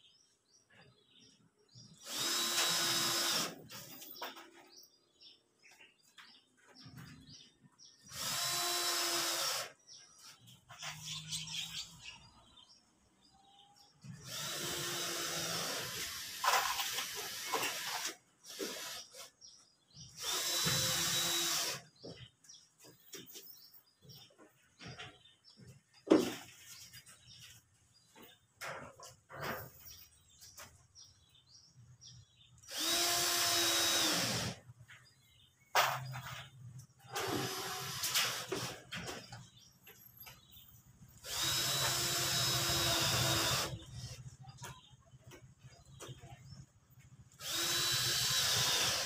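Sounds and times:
cordless drill driving screws: 2.0 - 3.9, 8.1 - 9.8, 14.2 - 19.3, 20.2 - 21.9, 32.6 - 34.6, 37.1 - 38.8, 41.2 - 43.8, 47.4 - 49.0.

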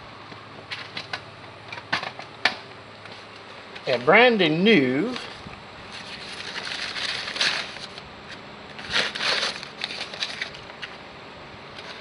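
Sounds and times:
packaging crinkling: 5.9 - 10.9.

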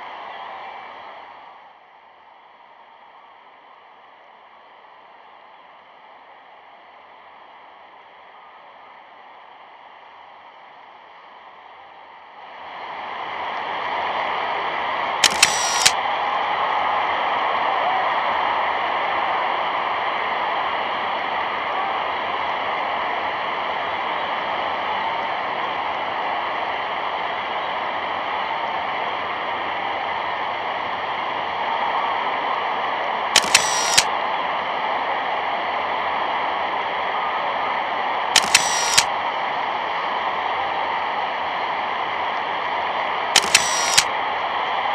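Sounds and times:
stadium crowd roar: 0.0 - 44.9
sharp clicks: 15.2 - 16.0, 33.4 - 34.1, 38.4 - 39.1, 43.4 - 44.1.

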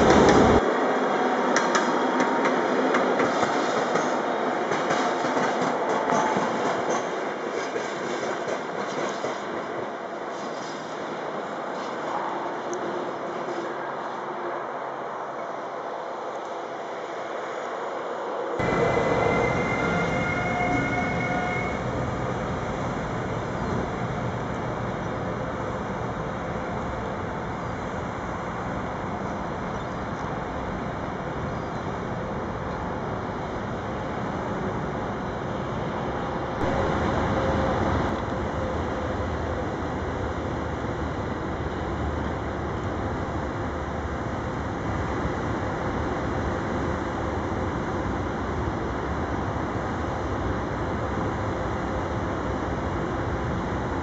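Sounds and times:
train wheels rumbling on rails: 0.0 - 14.3, 18.6 - 54.0
faint high squealing: 18.6 - 21.8.

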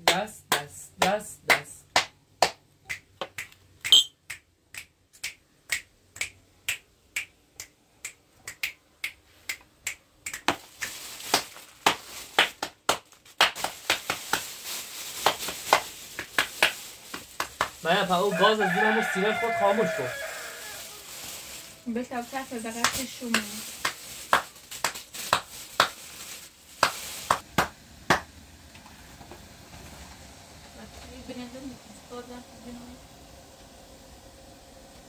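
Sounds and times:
brief high ping: 3.9 - 4.1.

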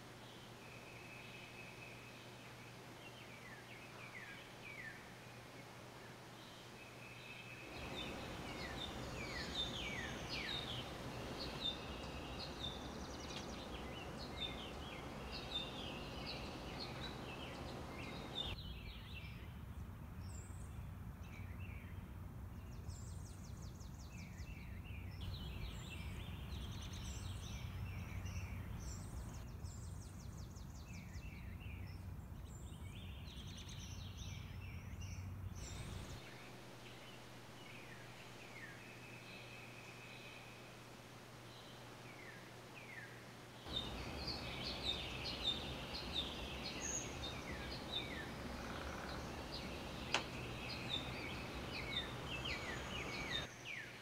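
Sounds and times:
songbirds singing: 0.0 - 54.0
low background rumble: 7.6 - 18.9, 43.6 - 53.5.

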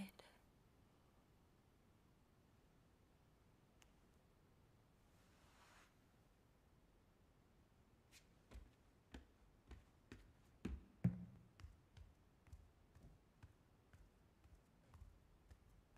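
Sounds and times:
faint footsteps walking: 8.1 - 15.9.

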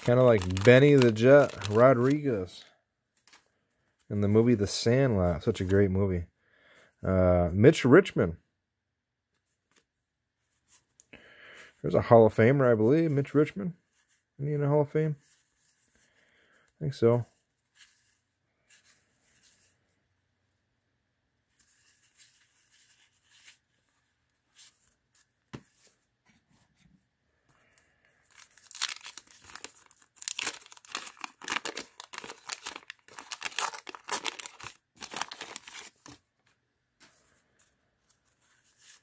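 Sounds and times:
wax paper wrapper tearing and crackling: 0.0 - 2.6, 28.3 - 36.2
paper and cards rustling: 0.0 - 6.0, 9.4 - 19.8, 21.5 - 26.9, 27.5 - 39.0.

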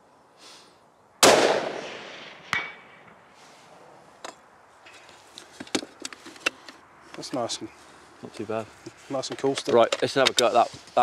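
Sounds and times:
rifle shot echoing: 1.2 - 3.2.

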